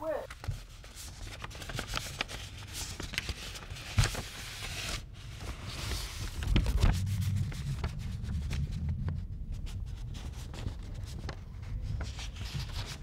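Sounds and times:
paper sheets rustling: 0.0s - 8.7s, 10.1s - 13.0s
low handling rumble: 5.5s - 12.3s.

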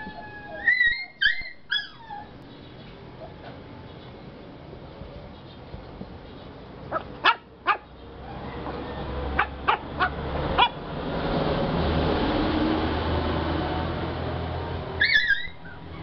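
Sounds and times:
puppy yipping: 0.0s - 2.4s, 6.9s - 8.7s, 9.4s - 10.8s, 15.0s - 16.0s.

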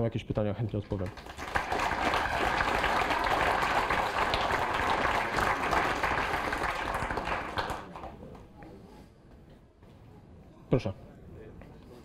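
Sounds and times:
audience applauding: 1.0s - 8.2s.

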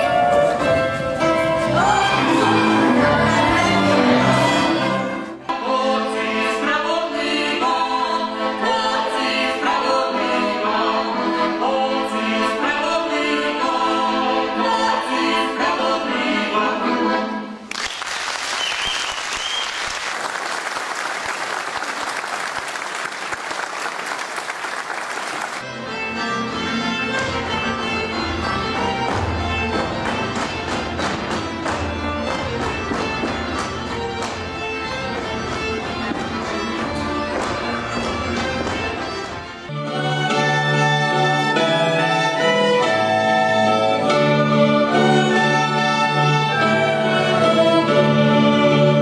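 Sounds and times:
accordion: 0.0s - 17.7s, 25.4s - 49.0s
folk dance band music: 0.0s - 17.7s, 18.6s - 49.0s
audience applauding: 17.7s - 25.6s.

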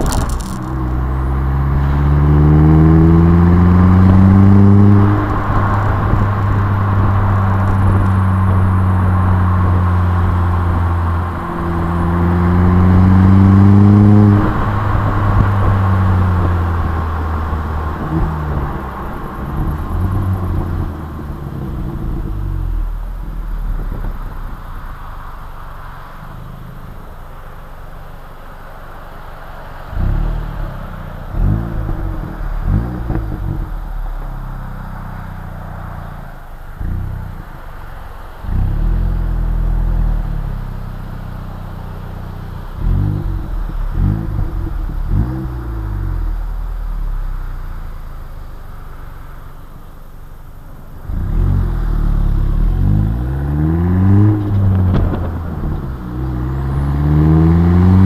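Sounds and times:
car engine revving: 0.0s - 58.0s
road and wind noise: 0.0s - 58.0s.

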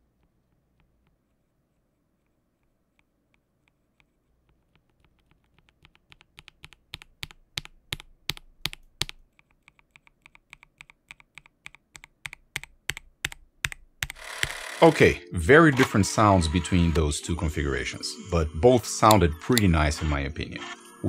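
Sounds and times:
mechanical keyboard typing: 4.5s - 15.2s.

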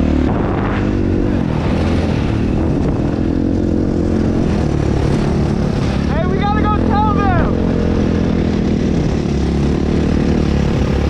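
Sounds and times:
dirt bike engine running: 0.0s - 11.0s.

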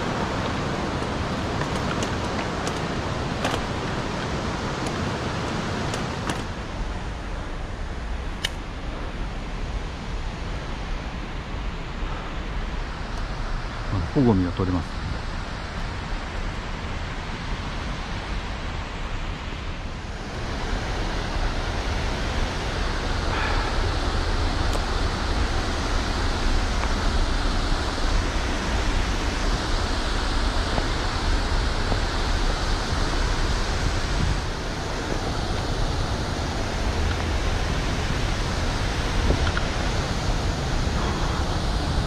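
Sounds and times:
stream water rushing over rocks: 0.0s - 8.1s, 19.8s - 42.0s.

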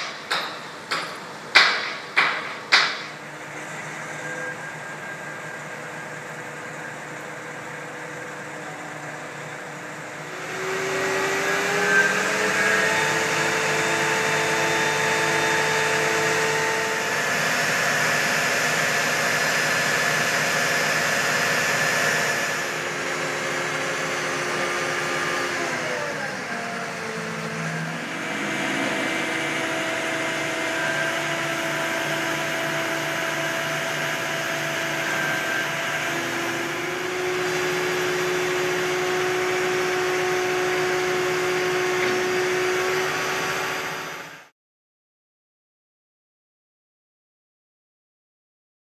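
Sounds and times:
diesel crane engine running: 0.0s - 44.4s
hum of steady tones: 26.4s - 34.3s.

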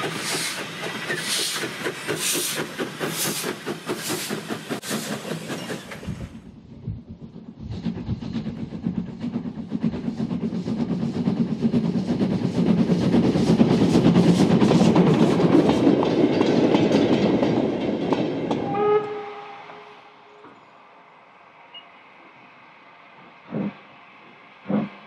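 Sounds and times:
steam locomotive chuffing: 0.0s - 20.7s, 22.5s - 25.0s
heavy rumble: 6.0s - 13.4s
steam whistle: 18.7s - 20.3s.

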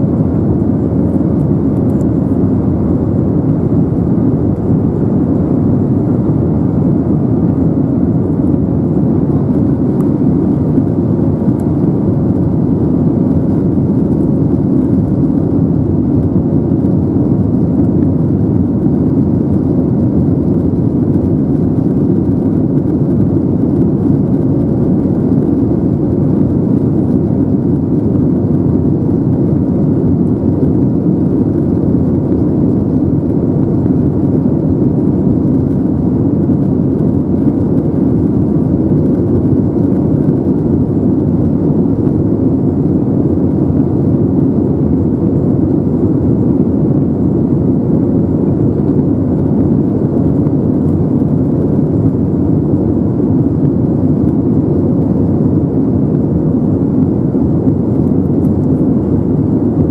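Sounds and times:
air rushing along fuselage: 0.0s - 59.9s
jet engine drone in cabin: 0.0s - 59.9s.

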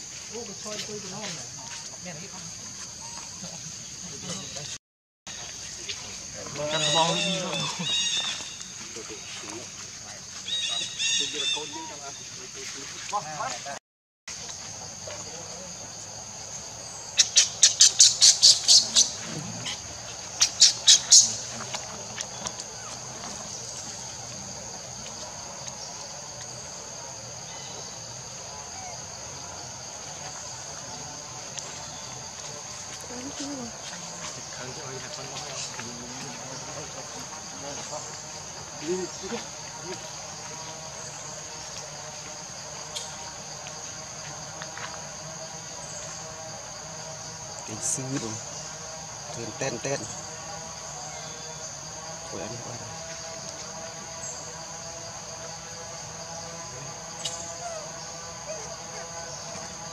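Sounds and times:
high insect drone: 0.0s - 59.9s
harsh squawking animal calls: 6.4s - 8.6s.

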